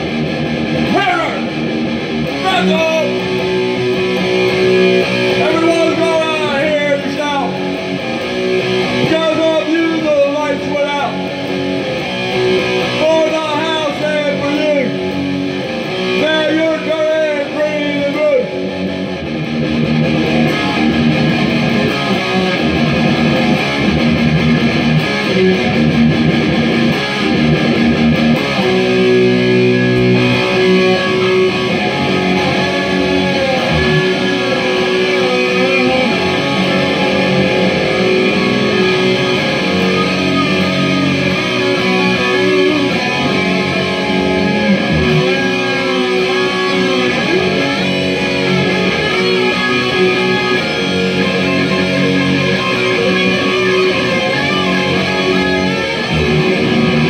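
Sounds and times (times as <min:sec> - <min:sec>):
electric guitar playing: 0:00.0 - 0:57.0.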